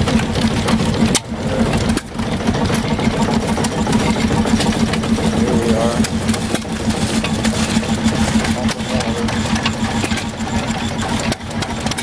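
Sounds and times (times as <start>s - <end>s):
old engines chugging: 0.0s - 12.0s.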